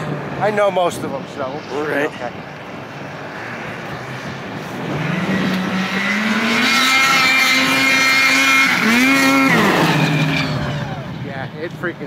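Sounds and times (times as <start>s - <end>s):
snowmobile engine revving: 3.3s - 11.5s.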